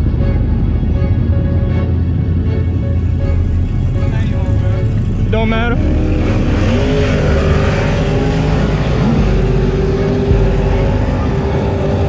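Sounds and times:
motorcycle engine rev: 0:00.0 - 0:12.0
motorcycle engines idling: 0:00.0 - 0:12.0.

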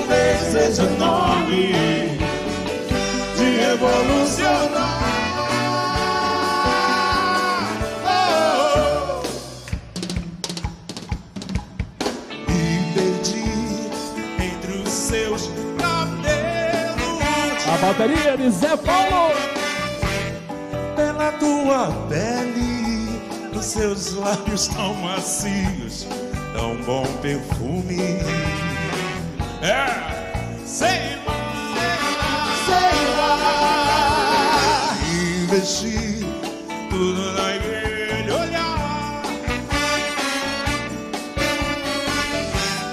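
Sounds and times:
drum and percussion hits: 0:00.0 - 0:20.6
big band playing: 0:00.0 - 0:42.9.

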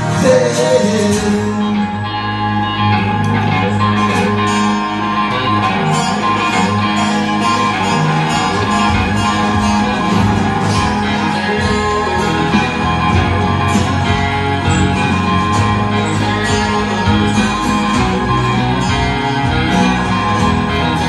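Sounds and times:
strummed guitars: 0:00.0 - 0:21.0
cajon beat: 0:05.4 - 0:21.0.

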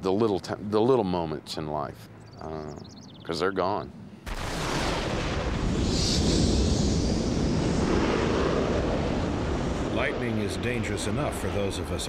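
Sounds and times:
jet engine rushing: 0:04.4 - 0:12.0.

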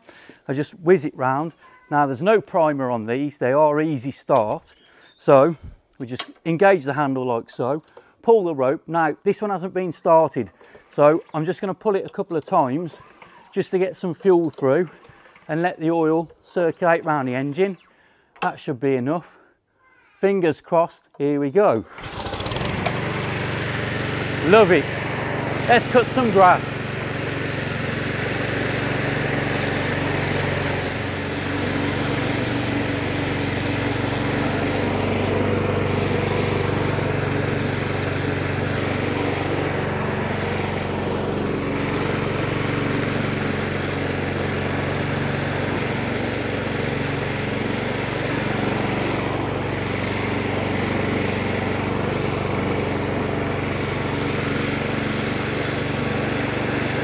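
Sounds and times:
lawnmower engine running: 0:07.8 - 0:17.9, 0:21.8 - 0:57.0.

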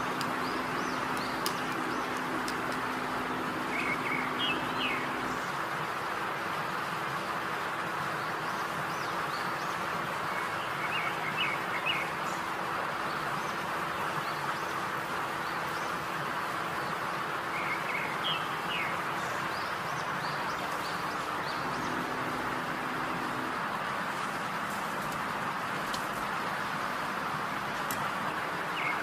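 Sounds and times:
bird chirping: 0:00.0 - 0:05.6, 0:16.8 - 0:25.8, 0:28.7 - 0:29.0.

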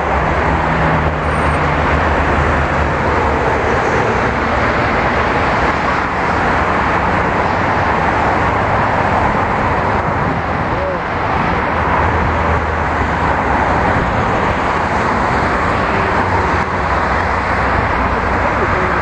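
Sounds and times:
rush of passing vehicles: 0:00.0 - 0:19.0.

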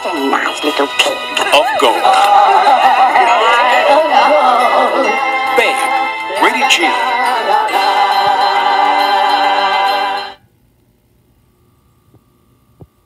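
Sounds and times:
trailer music with choral chord: 0:01.2 - 0:10.4
faint hum: 0:07.0 - 0:13.0.

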